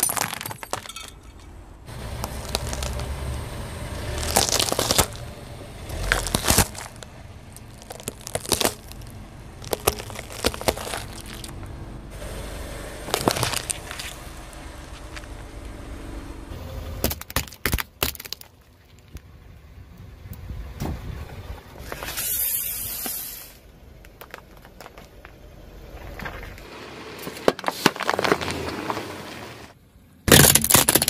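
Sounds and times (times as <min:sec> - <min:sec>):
plastic cracking and crunching: 0:00.0 - 0:00.9, 0:02.2 - 0:03.1, 0:04.2 - 0:05.2, 0:05.9 - 0:11.6, 0:13.1 - 0:14.2, 0:17.0 - 0:19.2, 0:30.3 - 0:31.0
car tyre crushing objects: 0:00.0 - 0:15.9, 0:16.8 - 0:19.4, 0:21.8 - 0:31.0.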